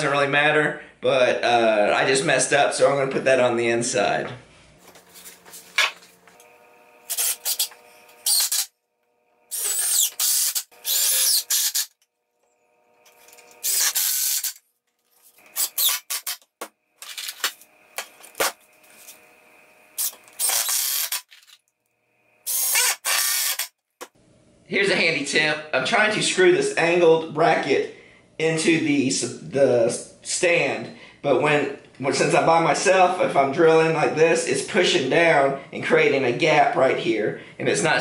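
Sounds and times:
cordless drill driving screws: 6.3 - 8.7, 9.5 - 12.0, 13.0 - 14.6, 15.3 - 16.5, 20.0 - 21.5, 22.5 - 23.7.

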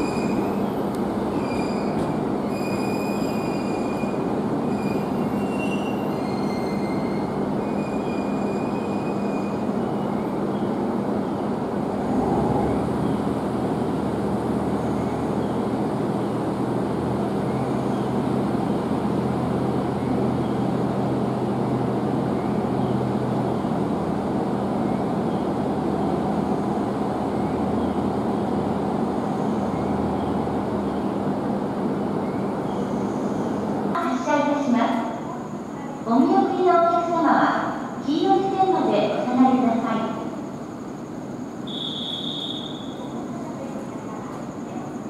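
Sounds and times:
railcar diesel engine humming: 0.0 - 45.0.

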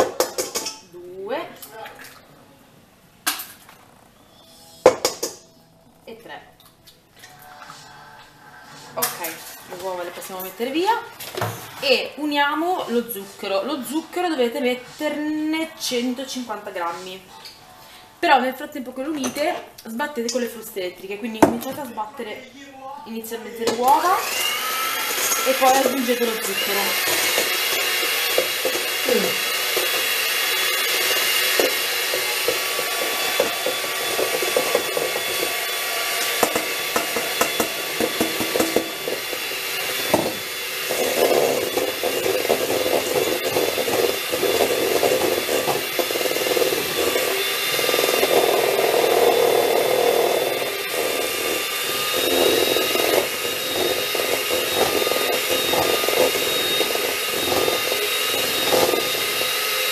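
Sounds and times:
beaters churning in bowl: 23.6 - 59.9
electric hand mixer whining: 23.6 - 59.9.

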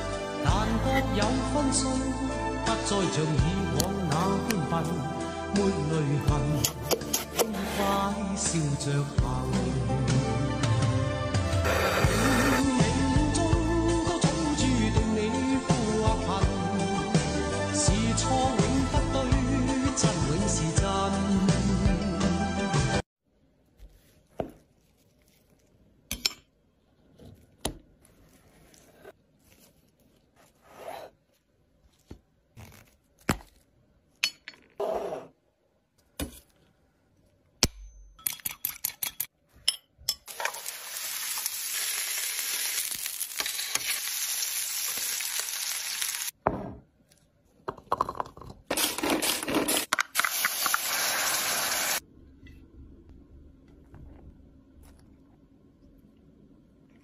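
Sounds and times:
food sizzling: 40.3 - 46.4, 50.2 - 52.0.

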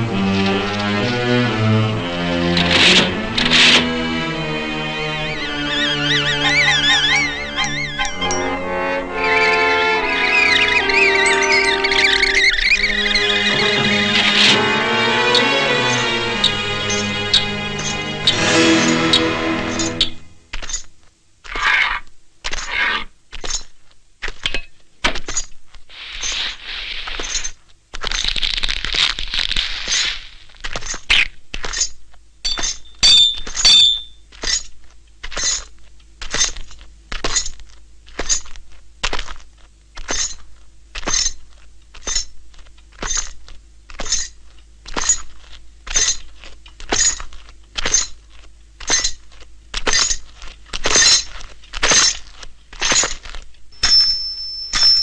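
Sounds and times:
brief metallic ring: 53.8 - 55.0.

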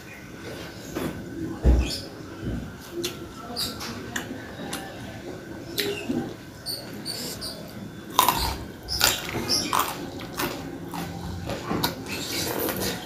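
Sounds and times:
chewing and mouth sounds: 8.1 - 13.0.

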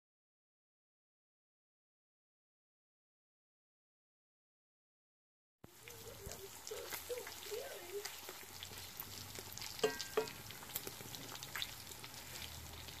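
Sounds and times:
bacon sizzling and popping: 5.7 - 13.0
metal clinks on cast iron pan: 9.8 - 10.4.

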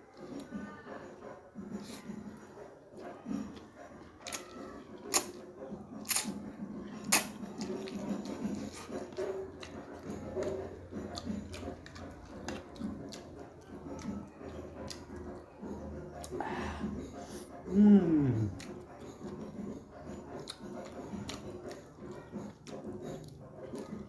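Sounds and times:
chewing noodles: 0.0 - 24.0
loud lip smacks: 5.1 - 5.4, 6.1 - 6.4, 7.1 - 7.8
wet mouth clicks: 5.1 - 5.4, 6.0 - 6.4, 7.0 - 9.8.

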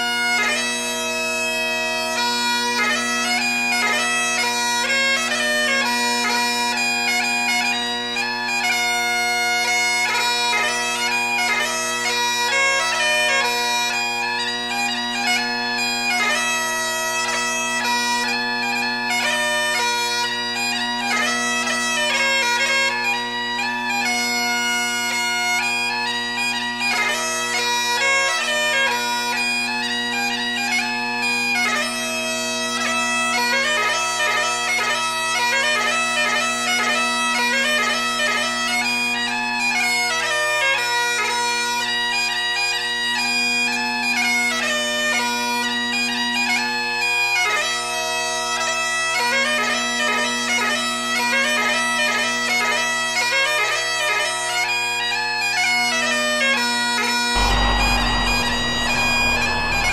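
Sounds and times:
bagpipe melody with drones: 57.4 - 59.9.

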